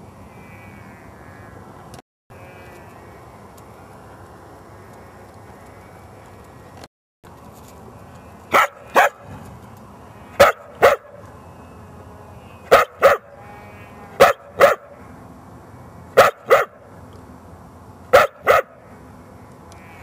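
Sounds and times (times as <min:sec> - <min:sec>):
dog barking: 0:08.5 - 0:09.2, 0:10.4 - 0:11.2, 0:12.7 - 0:13.3, 0:14.2 - 0:14.9, 0:16.2 - 0:16.8, 0:18.1 - 0:18.8.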